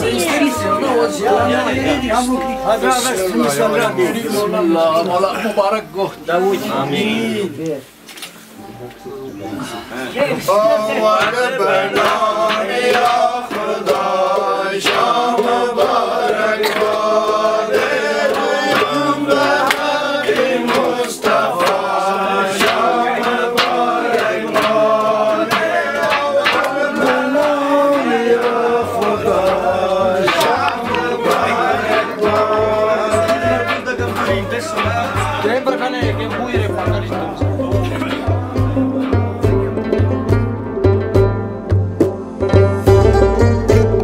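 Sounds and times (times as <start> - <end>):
deep pulsing beat: 0.0 - 4.0, 20.2 - 44.0
men singing together: 0.0 - 5.8, 9.8 - 40.1
sharp percussive hits: 11.1 - 44.0.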